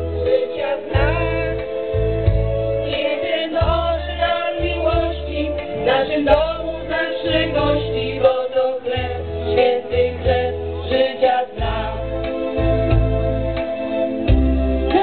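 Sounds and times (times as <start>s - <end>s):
instrumental backing with bass: 0.0s - 15.0s
women singing together: 0.3s - 1.7s, 2.8s - 12.1s.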